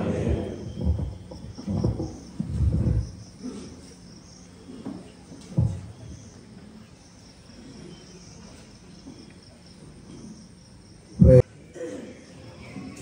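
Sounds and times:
faint low hum: 0.0s - 13.0s
insects chirring: 0.0s - 13.0s
low thump: 5.6s - 6.0s.

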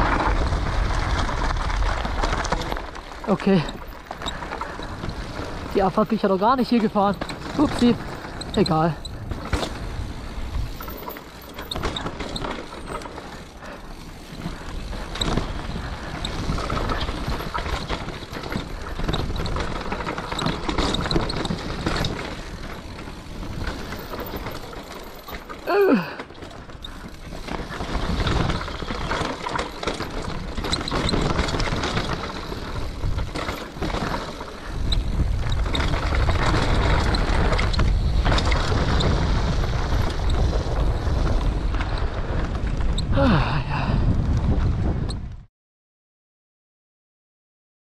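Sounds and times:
wind rumble on microphone: 0.0s - 12.8s, 25.9s - 45.5s
bike frame rattling: 0.0s - 43.8s
bike tyres rolling on dirt: 0.0s - 45.4s.

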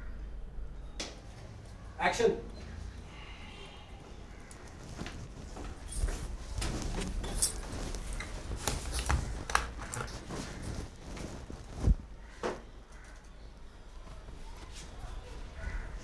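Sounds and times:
low room rumble: 0.0s - 12.8s
footsteps: 4.4s - 12.6s
rustles and knocks: 4.5s - 13.2s.

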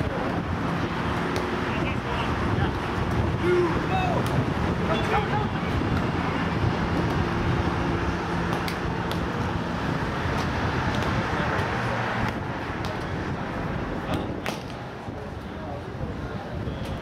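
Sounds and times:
road traffic noise: 0.0s - 17.0s
vehicle engine passing: 0.3s - 14.0s
hands striking volleyball: 8.5s - 9.3s, 10.3s - 13.1s.

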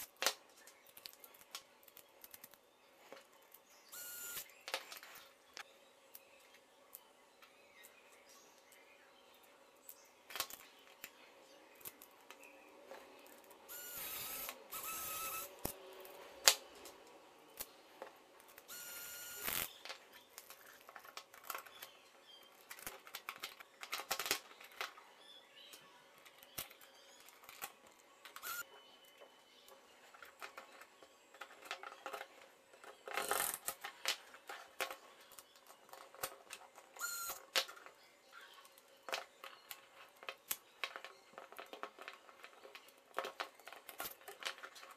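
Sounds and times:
plastic parts clicking and tapping: 19.6s - 25.0s, 25.6s - 44.9s.

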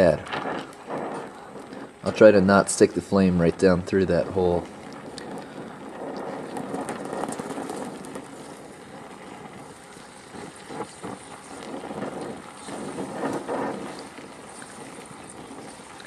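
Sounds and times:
sparks crackling: 0.0s - 16.0s
welding torch flame hissing: 0.0s - 16.0s.

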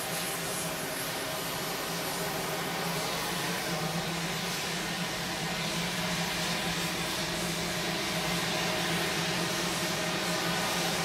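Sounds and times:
turboprop engine running: 0.0s - 11.0s.

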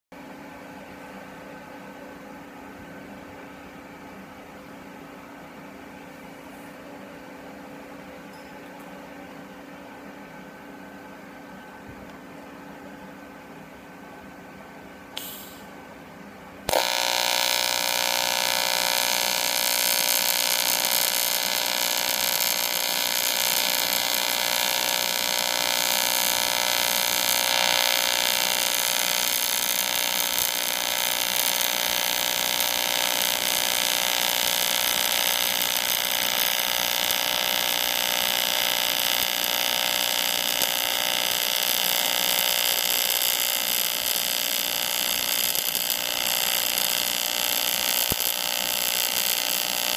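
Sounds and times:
welding arc buzzing: 15.2s - 15.7s, 16.7s - 49.9s.

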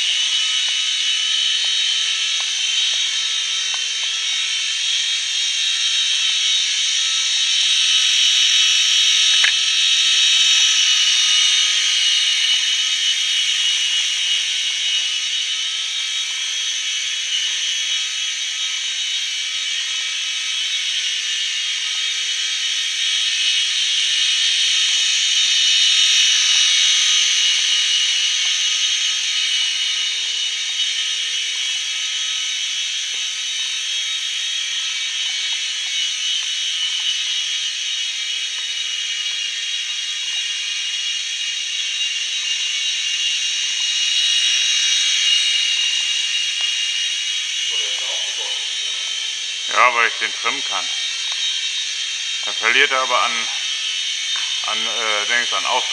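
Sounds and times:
toy helicopter rotor whine: 0.0s - 55.9s.

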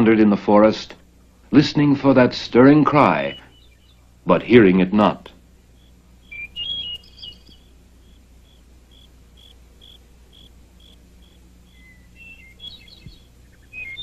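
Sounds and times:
low steady hum: 0.0s - 14.0s
bird chirps: 2.7s - 4.5s, 5.6s - 14.0s
cricket chirping: 5.7s - 14.0s.

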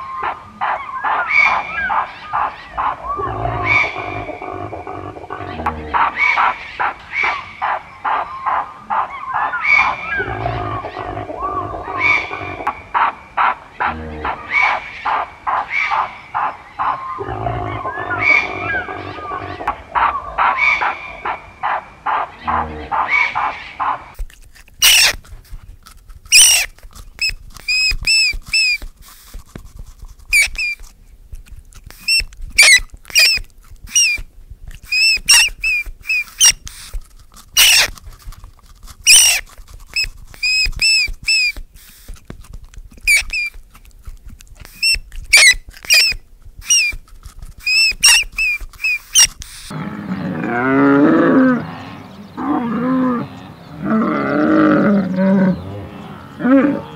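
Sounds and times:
rapid animal calls: 0.0s - 24.2s, 24.8s - 25.3s, 26.3s - 30.9s, 32.0s - 38.4s, 39.0s - 42.2s, 44.6s - 56.9s
meerkat chirping: 24.8s - 25.2s, 26.3s - 28.8s, 32.0s - 34.2s, 34.8s - 36.9s, 37.6s - 38.0s, 39.0s - 41.6s, 43.0s - 43.6s, 44.6s - 49.7s.

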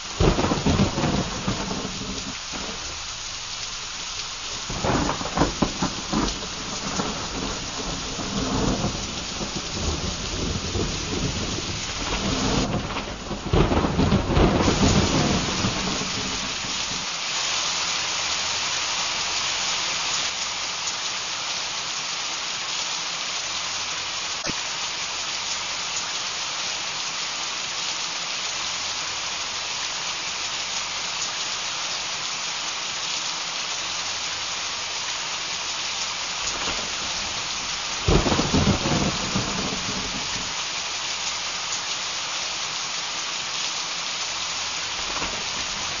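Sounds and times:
heavy rain: 0.0s - 46.0s
thunder: 0.2s - 3.1s, 4.6s - 17.1s, 36.5s - 40.6s, 45.0s - 46.0s.

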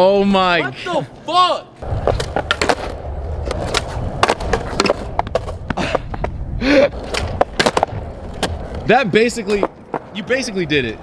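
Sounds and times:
skateboard wheels rolling on concrete: 1.8s - 11.0s
skateboard deck clacking: 1.9s - 6.4s, 7.0s - 8.8s.

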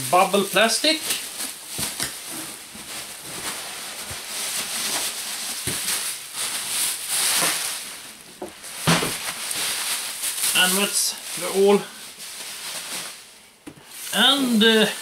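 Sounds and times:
bubble wrap crinkling: 0.1s - 15.0s.

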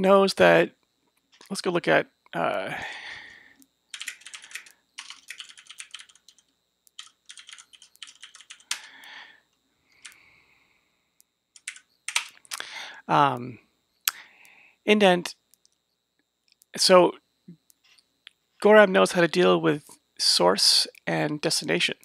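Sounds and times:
typing on computer keyboard: 3.9s - 8.9s, 11.6s - 12.4s.

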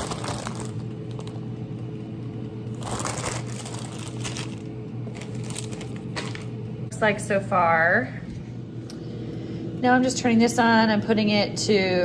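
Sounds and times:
plastic bag crinkling: 0.0s - 1.4s, 2.7s - 6.6s
steady low hum: 0.0s - 12.0s.

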